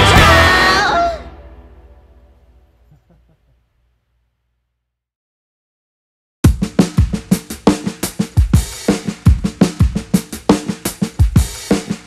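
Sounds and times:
fast drum kit beat: 0.0 - 0.9, 6.4 - 12.0.

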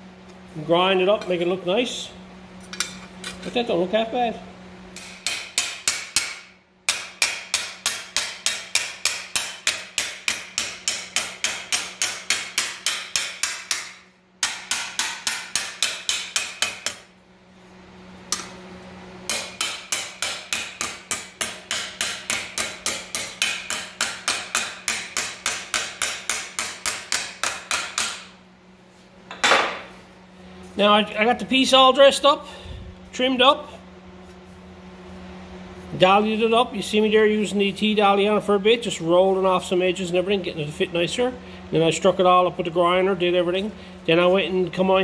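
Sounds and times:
hammer striking sheet metal: 5.0 - 17.0, 19.3 - 28.3.

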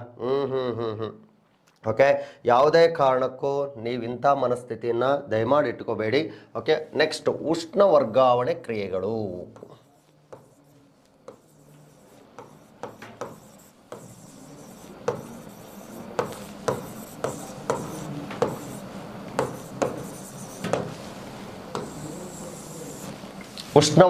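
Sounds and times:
pen tip tapping board: 9.6 - 10.6, 11.2 - 20.9, 21.8 - 22.0
pen scratching on board: 9.6 - 21.0, 21.7 - 23.2.

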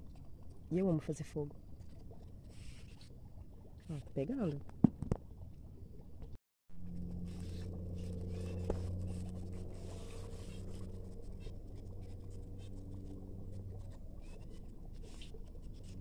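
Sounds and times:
steady low hum: 5.3 - 16.0.

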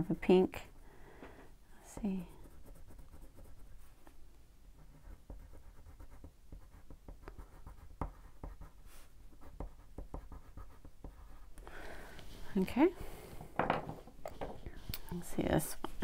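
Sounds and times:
crayon scratching on cardstock: 2.2 - 3.7.

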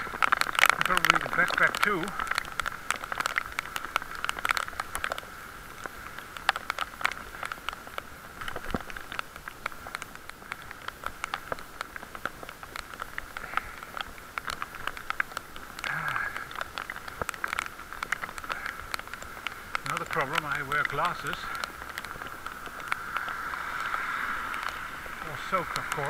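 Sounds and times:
heavy rain hiss: 0.0 - 26.0
raindrops ticking near microphone: 0.0 - 26.0.

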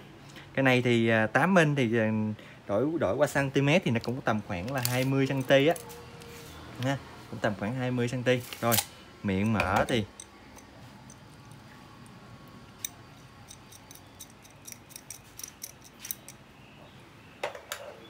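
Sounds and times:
metallic clicks of wrench: 12.8 - 16.4.

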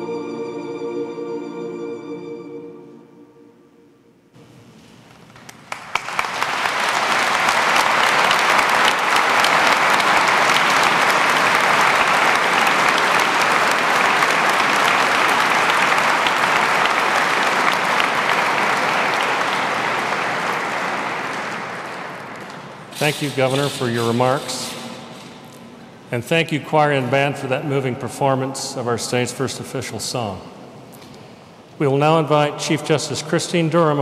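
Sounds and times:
audience applauding: 5.1 - 25.9.

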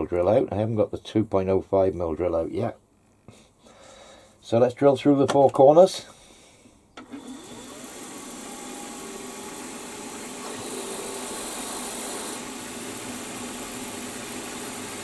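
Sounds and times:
drill cutting hiss: 7.0 - 15.0
milling machine spindle running: 7.1 - 15.0.

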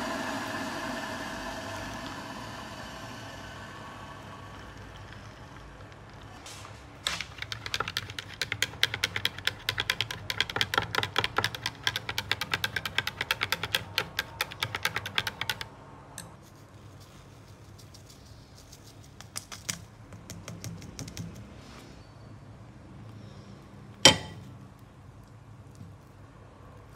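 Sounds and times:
low steady hum: 0.0 - 6.4.

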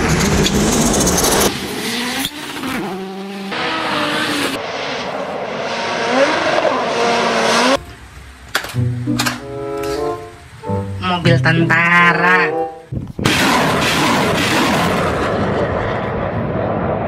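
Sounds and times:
rally car engine through gear changes: 0.0 - 4.6, 5.9 - 7.8.

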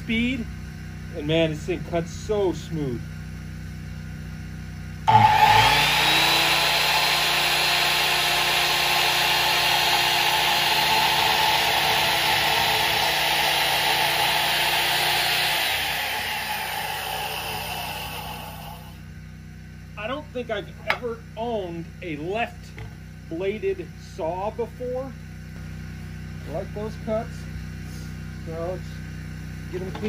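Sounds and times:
circular saw cutting wood: 5.1 - 19.0.

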